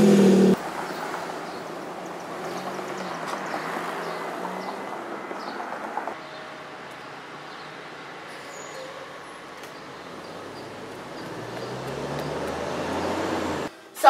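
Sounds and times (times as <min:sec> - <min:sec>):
loud car engine at tailpipe: 0:00.0 - 0:00.6, 0:10.8 - 0:13.7
street traffic noise: 0:00.0 - 0:14.0.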